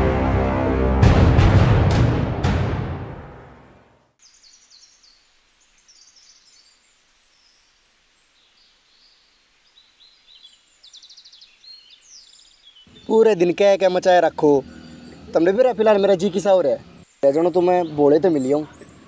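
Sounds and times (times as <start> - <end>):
intro music: 0.0 - 4.1
birdsong chirps and trills: 4.2 - 19.0.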